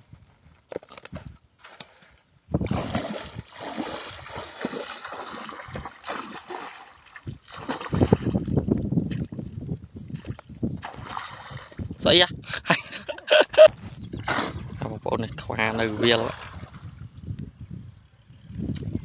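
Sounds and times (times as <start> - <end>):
water splashing and sloshing: 0.8 - 12.0, 14.2 - 17.0.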